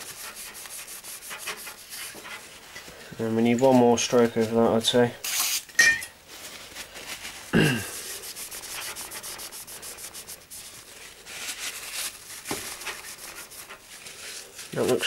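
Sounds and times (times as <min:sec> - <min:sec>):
tissue paper scratchy wiping: 0:00.0 - 0:02.7, 0:06.3 - 0:15.0.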